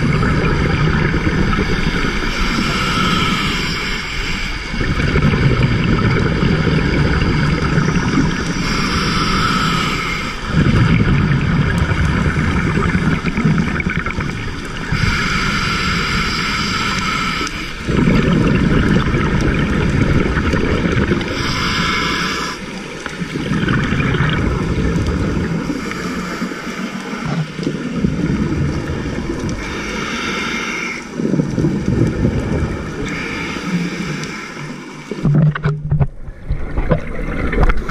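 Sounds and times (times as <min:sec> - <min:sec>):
exhaled bubbles rumbling underwater: 0:00.0 - 0:37.9
scuba regulator hissing inhale: 0:01.6 - 0:04.8, 0:08.4 - 0:10.6, 0:14.9 - 0:18.0, 0:21.2 - 0:22.9, 0:25.6 - 0:27.6, 0:29.5 - 0:31.2, 0:32.9 - 0:35.1.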